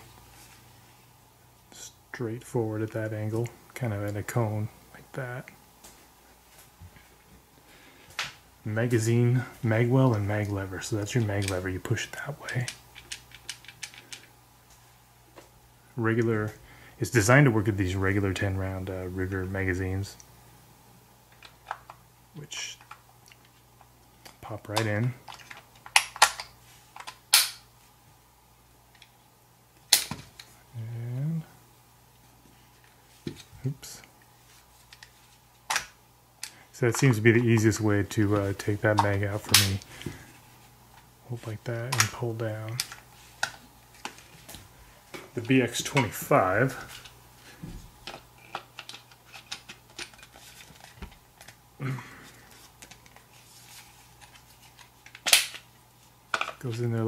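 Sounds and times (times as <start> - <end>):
plastic magazine clicks and snaps: 25.9 - 27.6, 55.1 - 55.6.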